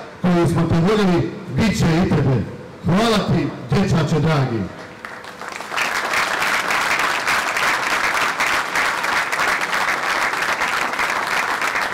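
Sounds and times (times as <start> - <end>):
crowd applauding: 5.0 - 11.9.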